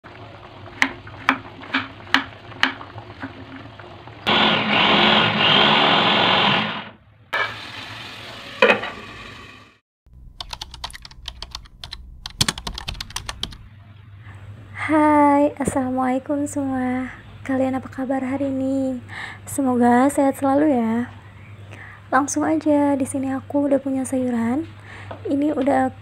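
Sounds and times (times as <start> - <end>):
electric food chopper whirring: 4.2 - 9.8.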